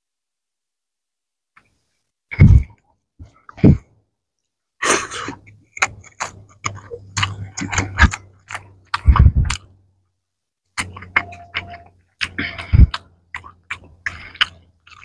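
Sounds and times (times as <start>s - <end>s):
mouth smacks: 4.8s - 9.8s, 10.8s - 15.0s
fingers mashing wet rice: 5.2s - 9.8s, 10.8s - 15.0s.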